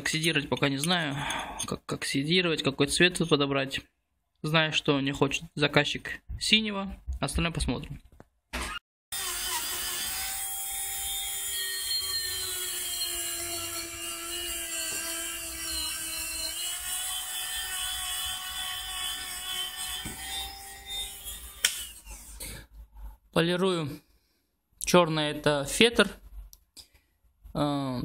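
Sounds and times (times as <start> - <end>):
rotary tool whining: 8.7 - 22.4.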